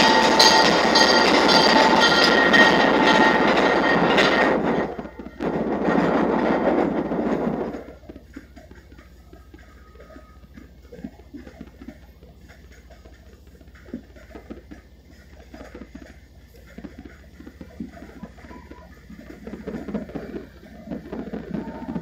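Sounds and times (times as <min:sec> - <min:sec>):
steady high tone: 0:00.0 - 0:12.2
low train rumble: 0:00.0 - 0:22.0
train wheels clicking on track: 0:00.0 - 0:22.0.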